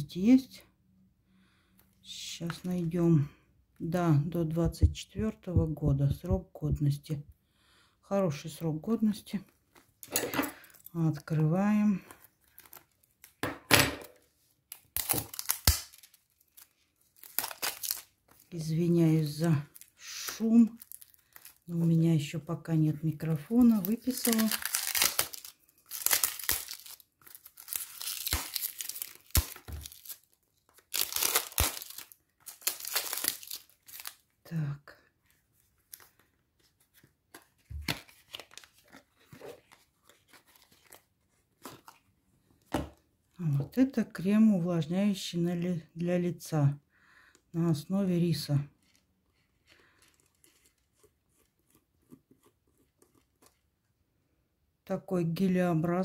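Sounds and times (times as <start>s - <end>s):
plastic film crinkling: 11.8s - 13.4s, 14.7s - 22.1s, 23.2s - 34.3s, 35.4s - 42.1s, 48.7s - 52.2s
plastic film snapping: 14.7s - 18.5s, 23.7s - 34.2s.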